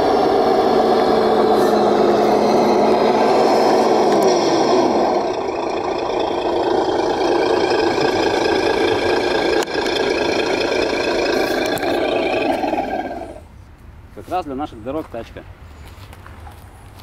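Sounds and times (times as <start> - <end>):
electric motor and gear whine: 0.0 - 13.4
drivetrain and tyre rumble: 0.0 - 13.5.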